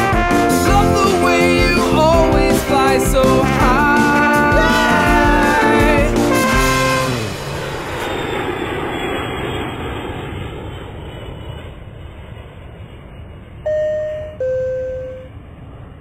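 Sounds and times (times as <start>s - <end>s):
airplane engine rumble: 0.0s - 16.0s
two-note descending chime: 13.7s - 15.4s.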